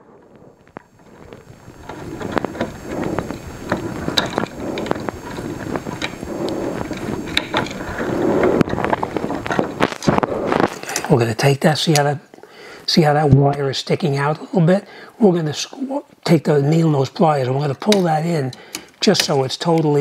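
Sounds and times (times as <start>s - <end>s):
hands rustling with wire: 0.0s - 11.2s.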